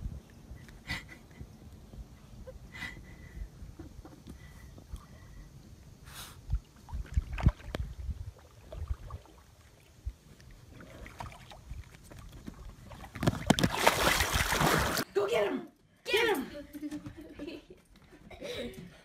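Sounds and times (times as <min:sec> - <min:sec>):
dog splashing into water: 0:12.8 - 0:15.0.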